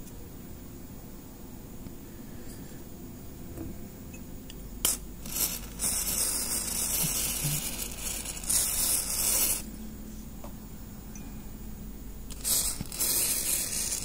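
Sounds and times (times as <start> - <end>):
spray can hissing: 4.8 - 9.7, 12.3 - 14.0.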